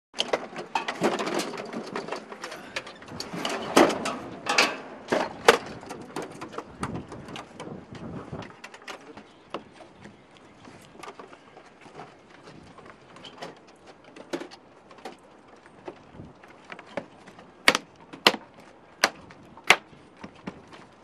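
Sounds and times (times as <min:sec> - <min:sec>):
metallic clicking and clanking: 0:00.2 - 0:06.7.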